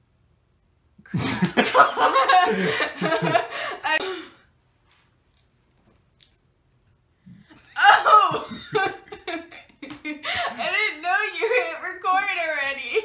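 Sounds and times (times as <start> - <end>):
woman laughing: 1.2 - 4.3, 7.7 - 11.8.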